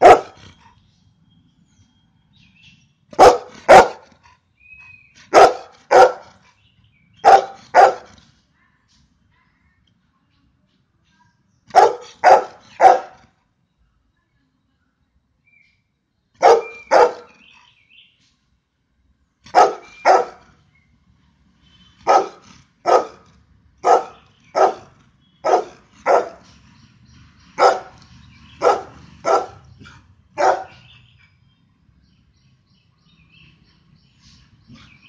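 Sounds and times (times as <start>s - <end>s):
dog barking: 0.0s - 0.4s, 3.2s - 4.1s, 5.3s - 6.3s, 7.2s - 8.1s, 11.7s - 13.2s, 16.4s - 17.4s, 19.5s - 20.4s, 22.0s - 26.4s, 27.6s - 28.0s, 28.6s - 29.7s, 30.4s - 30.9s.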